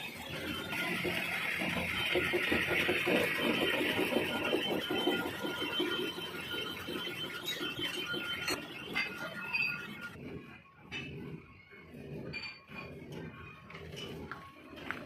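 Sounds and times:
metal lathe boring tool cutting: 0.0s - 10.2s.

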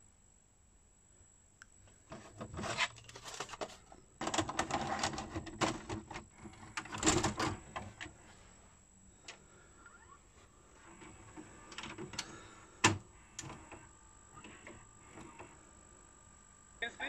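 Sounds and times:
mechanism clicks and clunks: 2.1s - 8.1s, 11.0s - 15.6s
cassette sliding in slot: 2.1s - 8.2s, 10.9s - 15.6s.

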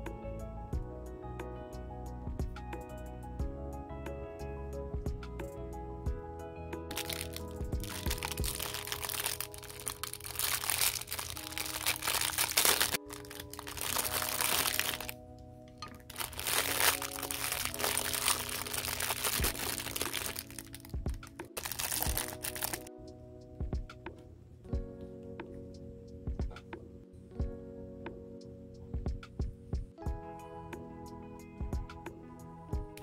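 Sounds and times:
plastic bags crinkling: 6.9s - 15.2s, 15.9s - 22.9s.

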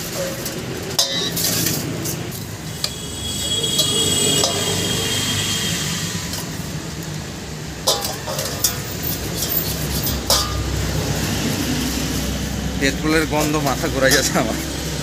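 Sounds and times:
metal clinking against basin: 0.0s - 2.2s, 3.6s - 4.9s, 7.8s - 10.8s.

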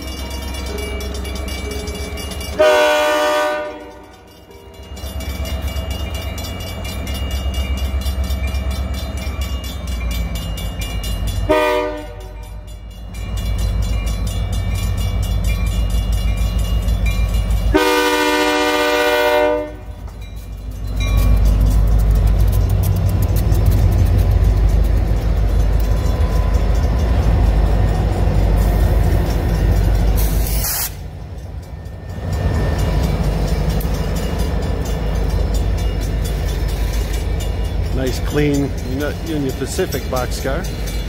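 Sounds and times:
crossing signal bells ringing: 0.0s - 41.0s
diesel locomotive rumbling: 0.0s - 41.0s
locomotive chime horn blasts: 2.1s - 4.9s, 11.3s - 12.8s, 17.7s - 20.2s.

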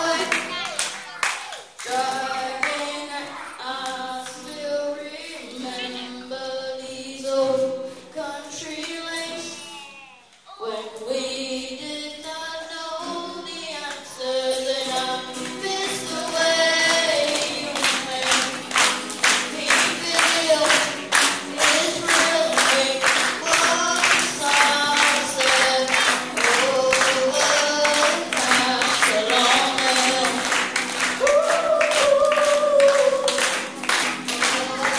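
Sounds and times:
boy singing: 0.0s - 18.8s, 19.4s - 30.6s, 31.2s - 33.6s, 34.2s - 34.9s
acoustic guitar: 0.0s - 34.9s.

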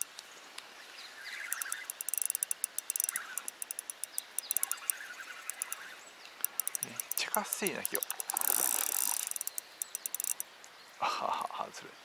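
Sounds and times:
fishing reel clicking: 1.5s - 5.8s, 6.4s - 10.4s.

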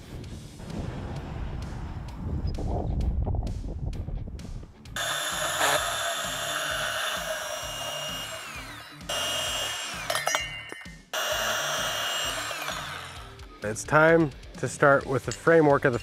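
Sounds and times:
band saw cutting metal: 5.0s - 13.4s.

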